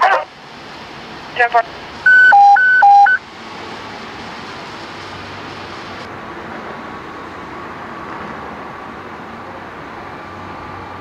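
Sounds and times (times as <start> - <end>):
helicopter cabin drone and hiss: 0.0 - 7.4.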